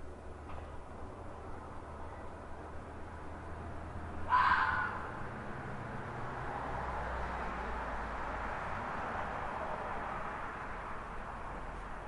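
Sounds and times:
fox screaming: 0:04.3 - 0:05.1.

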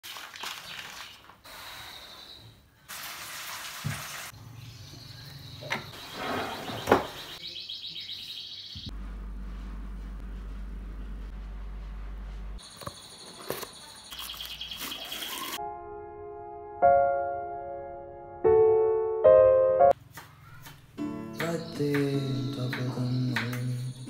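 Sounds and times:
steady low hum: 0:08.9 - 0:12.6.

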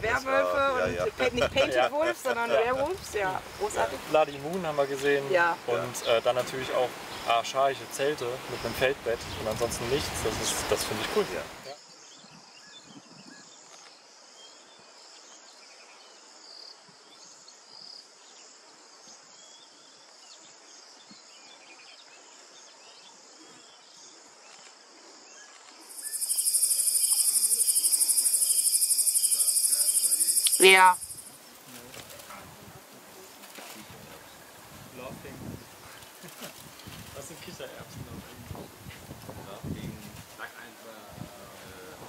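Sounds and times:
insects chirring: 0:00.0 - 0:12.1, 0:24.4 - 0:32.3
pulsing insect chorus: 0:25.7 - 0:32.1.

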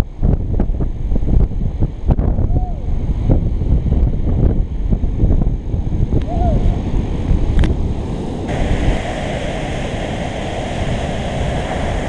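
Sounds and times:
wind buffeting microphone: 0:00.0 - 0:12.0
surf breaking on reef: 0:07.0 - 0:12.0.

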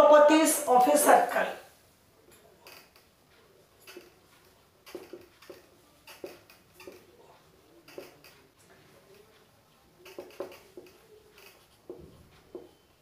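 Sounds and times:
marker squeaking on whiteboard: 0:03.8 - 0:07.2, 0:07.8 - 0:08.4, 0:09.9 - 0:13.0.

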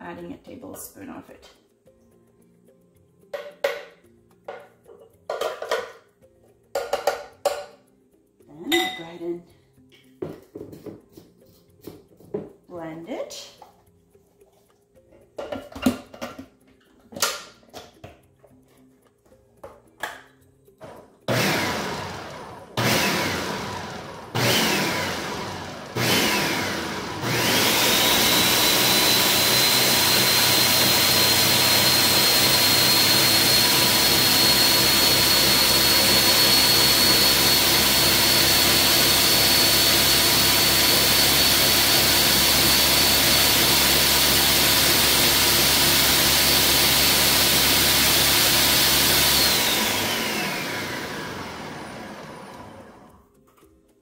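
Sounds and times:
countertop blender whining: 0:20.8 - 0:53.3.

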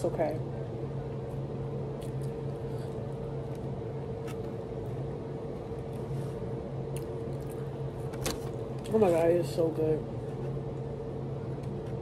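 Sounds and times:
low mechanical hum: 0:00.0 - 0:12.0.

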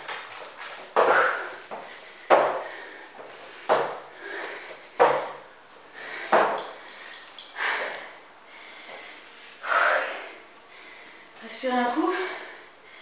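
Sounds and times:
high electronic timer beep: 0:06.6 - 0:07.6.

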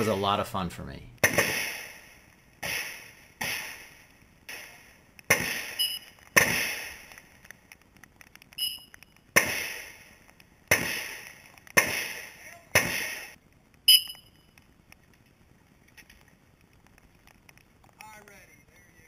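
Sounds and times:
gunshots: 0:01.2 - 0:07.2, 0:09.3 - 0:13.4
thin metallic ring: 0:13.9 - 0:14.4.

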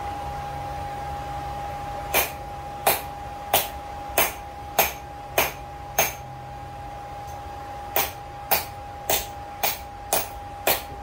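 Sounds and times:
steady hum: 0:00.0 - 0:11.0
hammer striking hot steel on anvil: 0:02.1 - 0:06.2, 0:07.9 - 0:11.0.

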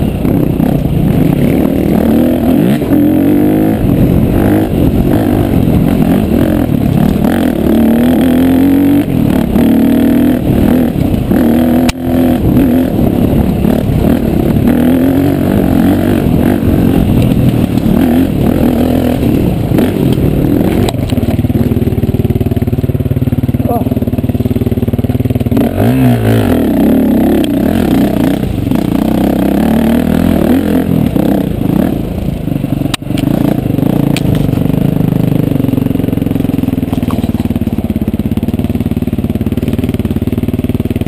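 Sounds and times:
motorcycle engine revving: 0:00.0 - 0:41.0.

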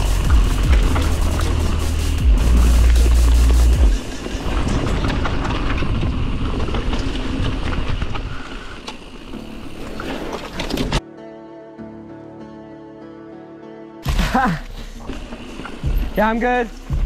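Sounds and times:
bike rattling over bumps: 0:00.0 - 0:11.0, 0:15.0 - 0:17.0.

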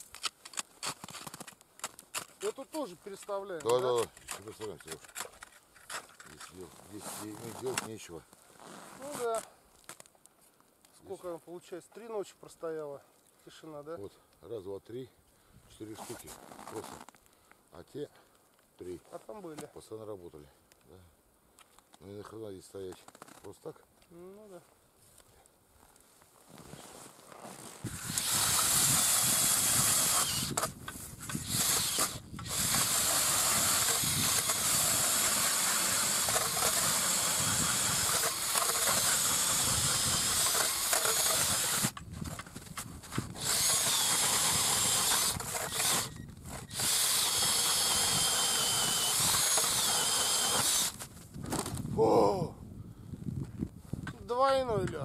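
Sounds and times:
drill boring through ice: 0:27.8 - 0:42.4, 0:43.0 - 0:51.1.

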